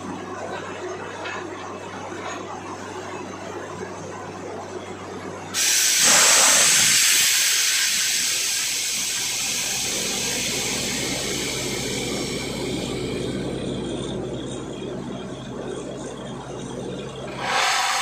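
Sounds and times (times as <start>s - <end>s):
compressed air blasting with water: 5.6s - 12.7s, 17.4s - 18.0s
engine humming: 9.2s - 18.0s.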